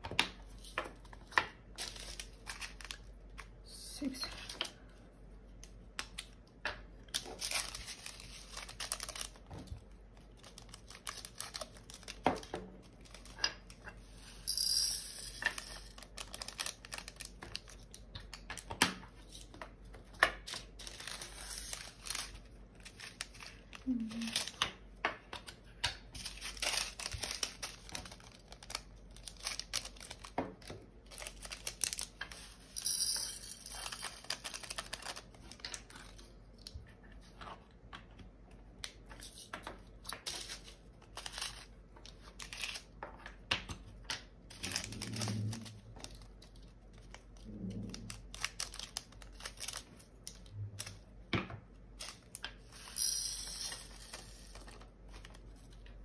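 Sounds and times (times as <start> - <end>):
plastic bags crinkling: 1.7 - 3.4, 7.0 - 13.8, 15.4 - 18.1, 20.4 - 24.6, 26.2 - 32.7, 33.5 - 36.3, 44.5 - 51.0
small clicks and crackles: 44.1 - 51.0.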